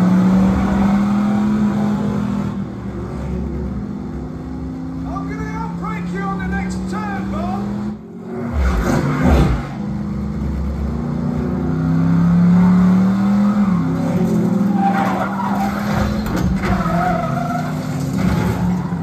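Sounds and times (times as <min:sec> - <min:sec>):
tires squealing: 0:00.0 - 0:02.6, 0:12.4 - 0:19.0
racing car engines running hard: 0:00.0 - 0:19.0.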